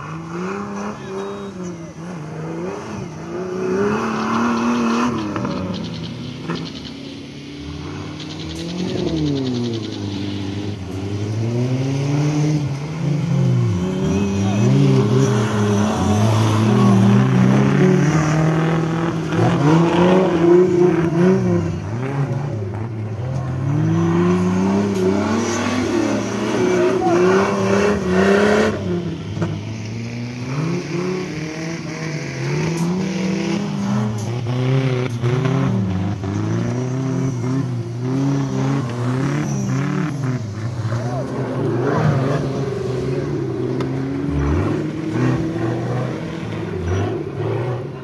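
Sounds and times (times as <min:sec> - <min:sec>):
buggy engine revving: 0:00.0 - 0:48.0.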